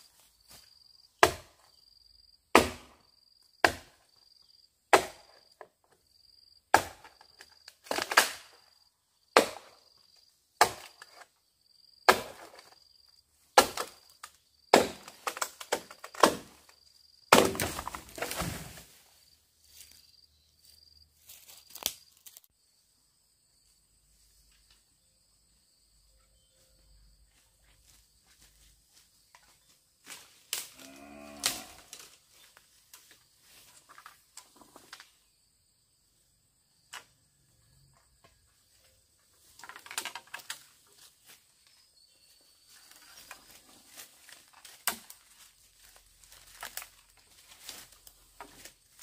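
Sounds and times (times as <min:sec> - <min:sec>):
blade chopping bamboo: 0:01.2 - 0:01.6, 0:02.5 - 0:03.0, 0:03.6 - 0:04.0, 0:04.9 - 0:05.3, 0:09.4 - 0:09.7, 0:10.6 - 0:11.1, 0:12.1 - 0:12.6, 0:13.6 - 0:14.0, 0:14.7 - 0:16.6, 0:17.3 - 0:18.6
insect chirping in pulses: 0:18.2 - 0:28.0.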